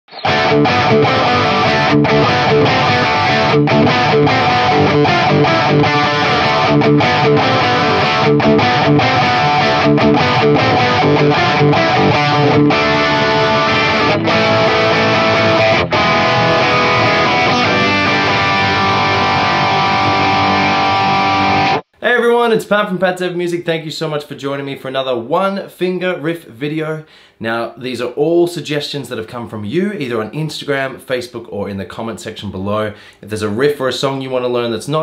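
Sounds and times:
electric guitar riff: 0.1 - 22.0.

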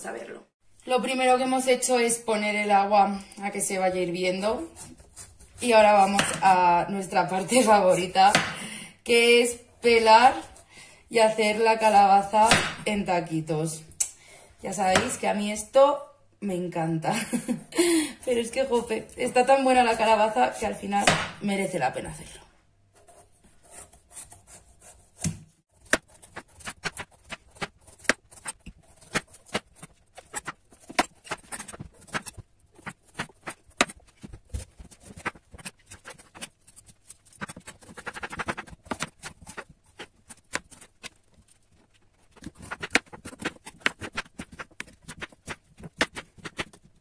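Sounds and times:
knife rasping through pumpkin: 4.3 - 6.7, 23.0 - 47.0.

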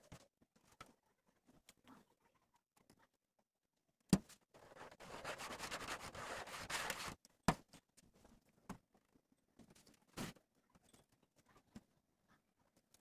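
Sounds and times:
cloth rubbing on tin sheet: 4.6 - 7.2.

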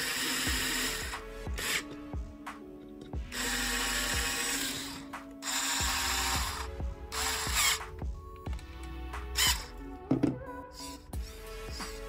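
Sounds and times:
electric screwdriver running: 0.0 - 2.0, 3.2 - 7.9, 9.4 - 9.7.

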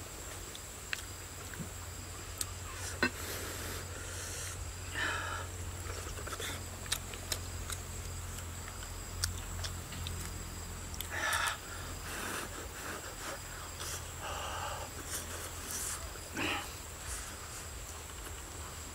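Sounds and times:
chewing and lip-smacking: 5.9 - 11.2.

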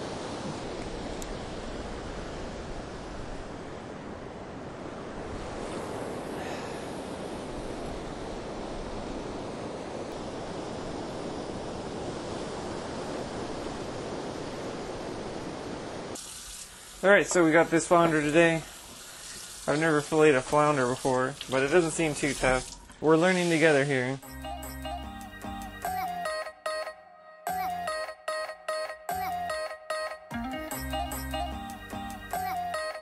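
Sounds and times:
surf breaking on a beach: 0.0 - 16.2.

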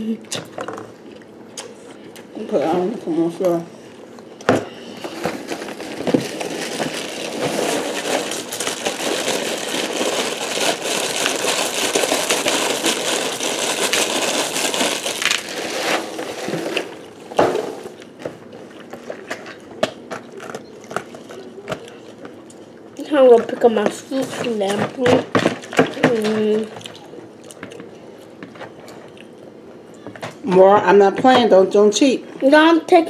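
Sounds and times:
cereal pouring into plastic bowl: 6.2 - 16.5.

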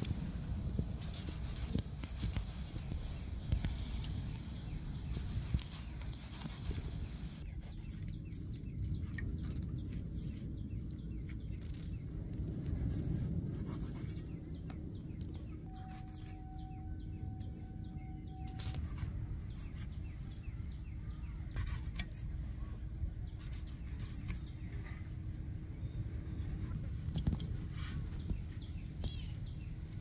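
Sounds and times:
low outdoor rumble: 0.0 - 30.0
birds chirping: 1.1 - 30.0
squid being handled and cut: 12.9 - 17.1
faint steady tone: 15.6 - 19.4.

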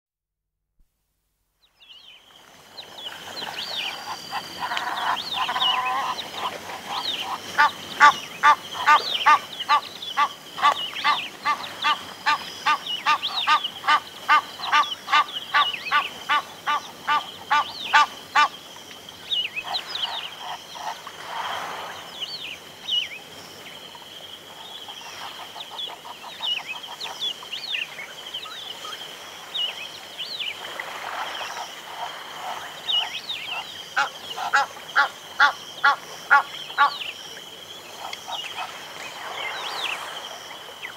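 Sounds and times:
insects buzzing: 1.8 - 40.9
geese honking: 4.1 - 18.5.

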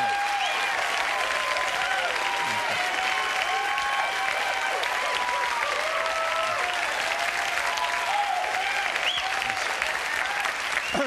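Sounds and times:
audience applauding: 0.0 - 11.0
cheers and whoops: 0.0 - 11.0.

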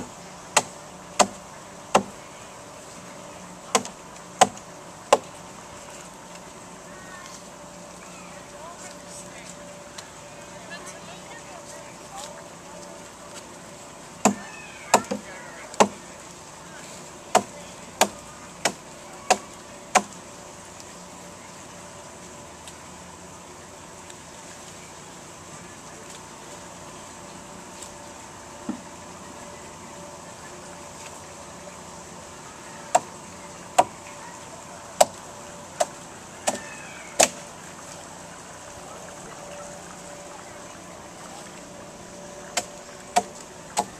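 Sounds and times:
hatchet chopping wood: 0.6 - 2.1, 3.7 - 5.3, 14.2 - 15.2, 15.8 - 16.0, 17.3 - 20.1, 42.6 - 43.9.

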